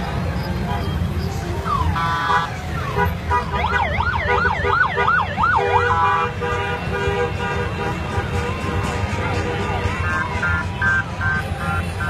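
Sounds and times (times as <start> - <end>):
motorcycle engines rumbling: 0.0 - 12.0
siren wailing: 3.5 - 6.0.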